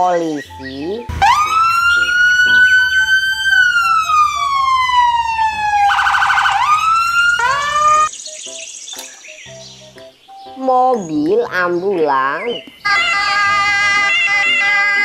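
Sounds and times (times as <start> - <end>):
police siren wailing and warbling: 1.1 - 8.1, 12.9 - 15.0.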